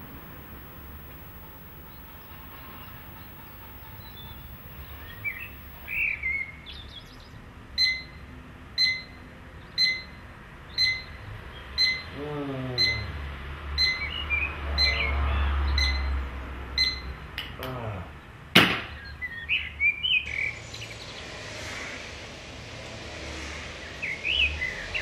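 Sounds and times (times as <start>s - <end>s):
birds chirping: 0.0s - 7.2s
digital alarm clock beeping: 7.8s - 8.2s, 8.8s - 9.2s, 9.8s - 10.2s, 10.8s - 11.2s, 11.8s - 12.1s, 12.8s - 13.1s, 13.8s - 14.1s, 15.8s - 16.1s, 16.8s - 17.2s.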